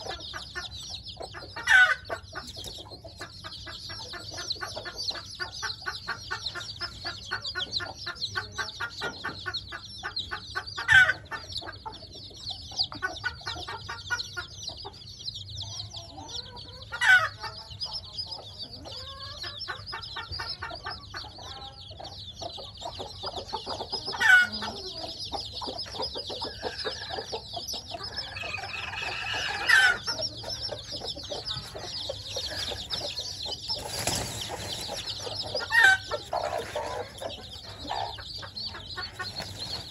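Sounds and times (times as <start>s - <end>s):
rapid clucking: 0.0s - 15.0s, 16.8s - 39.9s
chicks peeping: 0.0s - 39.9s
loud sharp calls: 22.9s - 39.9s.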